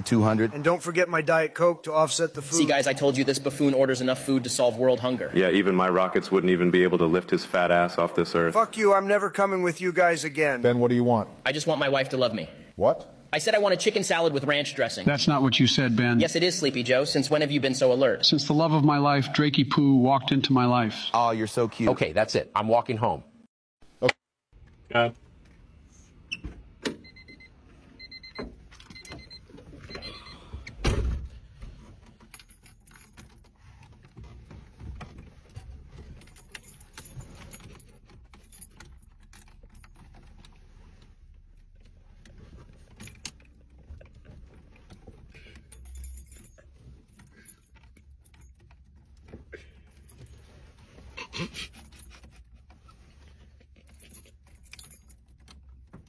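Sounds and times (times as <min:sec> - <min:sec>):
car keys jangling and clicking: 0:31.8 - 0:56.0.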